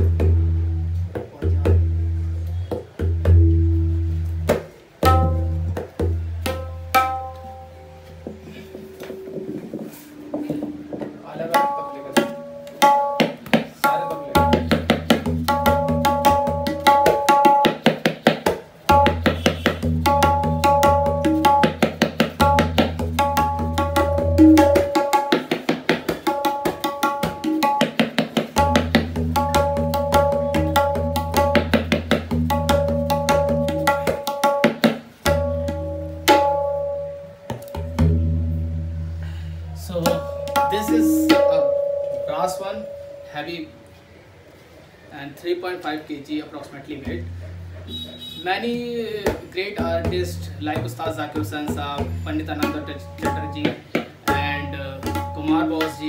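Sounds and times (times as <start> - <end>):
high ringing drum strokes: 6.6 - 12.7.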